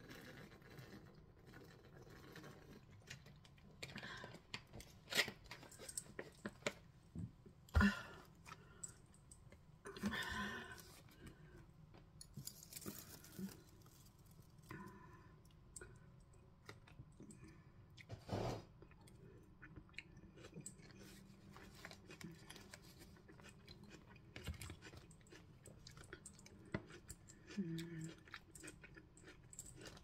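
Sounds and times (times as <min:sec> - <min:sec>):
person chewing: 0:18.8 - 0:30.0.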